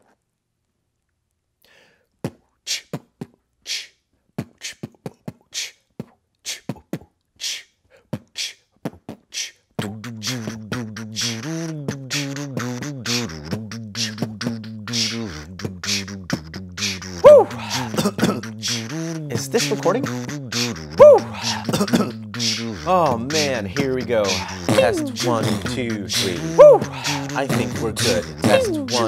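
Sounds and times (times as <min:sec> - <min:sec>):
man beatboxing: 0:02.2 - 0:29.0
hummed wavering tone: 0:28.4 - 0:29.0.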